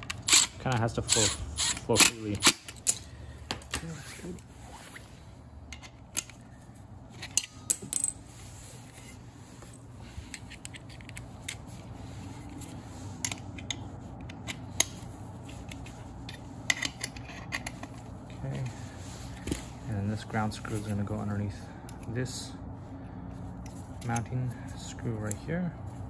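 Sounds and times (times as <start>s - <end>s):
screwdriver and screws clinking: 0.0s - 3.1s, 9.0s - 11.7s.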